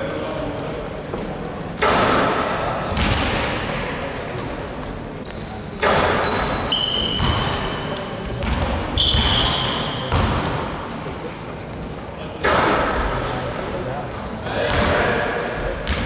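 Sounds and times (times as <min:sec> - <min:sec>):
short high squeaks: 0:03.1 - 0:07.2, 0:12.9 - 0:14.2
basketballs thudding on hardwood floor: 0:07.2 - 0:07.5, 0:10.1 - 0:10.6.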